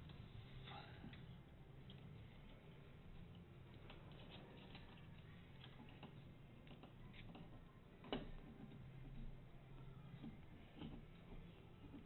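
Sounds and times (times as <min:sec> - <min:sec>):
faint clicks of small parts: 0:00.0 - 0:12.0.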